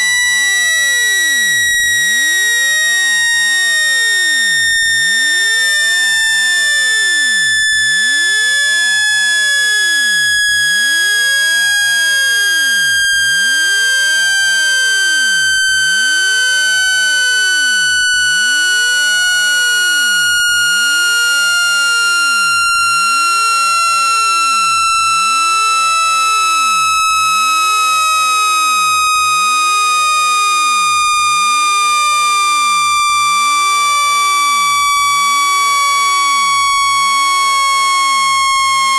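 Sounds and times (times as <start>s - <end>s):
electronic tone gliding down: 12.7s - 27.5s.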